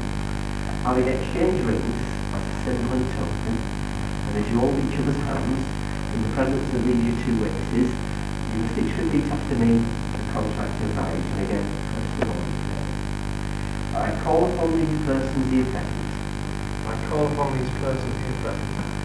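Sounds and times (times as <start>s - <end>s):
electrical hum: 0.0s - 19.0s
quiet indistinct speech: 0.7s - 13.0s, 16.8s - 19.0s.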